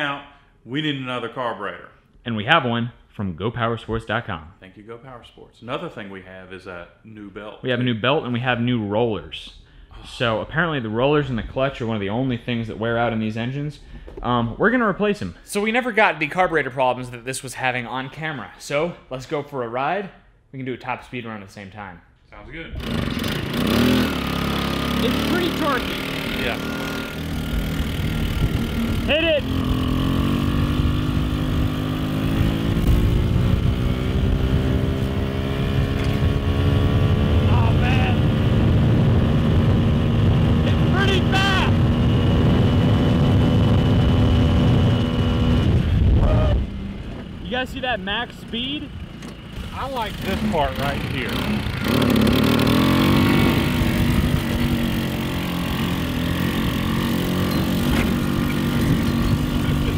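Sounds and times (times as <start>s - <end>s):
scooter engine at full throttle: 22.8s - 47.3s, 48.8s - 59.9s.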